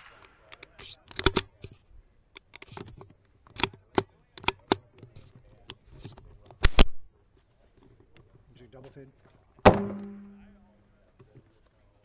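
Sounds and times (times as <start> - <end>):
rifle shots: 0.0 - 0.7.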